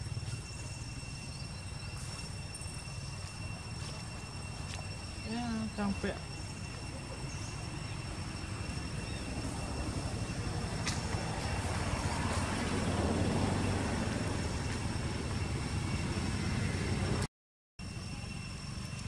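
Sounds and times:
passing vehicle rumble: 0:07.5 - 0:17.3.

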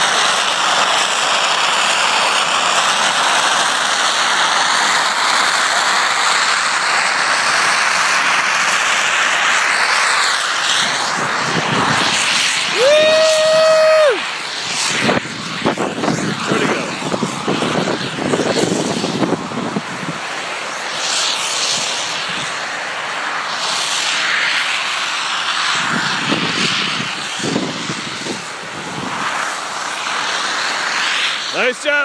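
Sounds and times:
skis scraping over snow: 0:00.0 - 0:32.0
wind buffeting microphone: 0:10.6 - 0:13.7, 0:14.6 - 0:20.4, 0:25.7 - 0:30.0.

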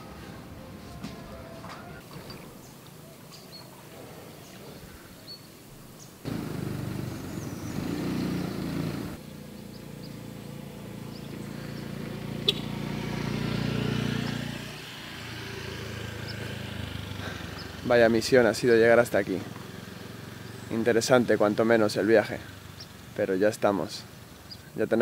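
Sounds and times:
vehicle engine humming: 0:06.2 - 0:24.8.

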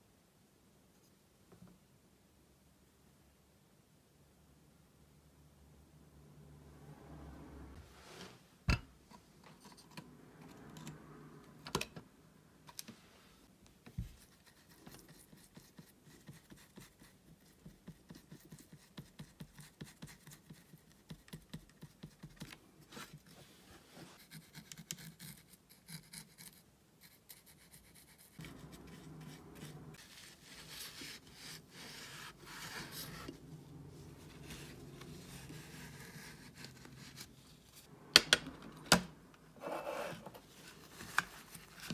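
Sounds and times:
paintbrush scrubbing paint pans: 0:27.1 - 0:37.9
tissue rubbing paint pans: 0:28.0 - 0:37.9.

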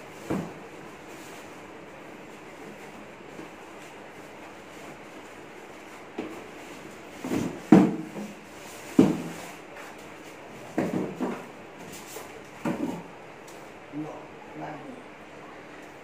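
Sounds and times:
knocks and thumps on cardboard box: 0:00.2 - 0:00.6, 0:07.2 - 0:09.5, 0:10.7 - 0:11.5, 0:12.6 - 0:13.1.

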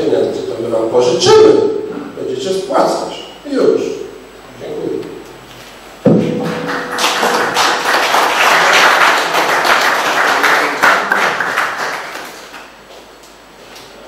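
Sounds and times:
audience applauding: 0:06.5 - 0:12.7.

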